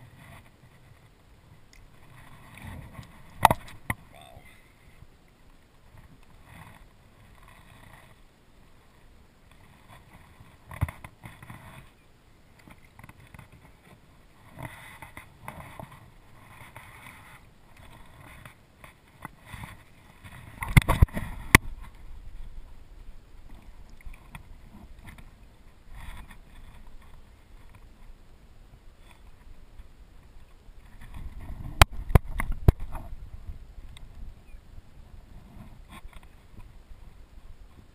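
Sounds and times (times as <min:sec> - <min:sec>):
water sloshing against kayak hull: 0:00.0 - 0:05.0.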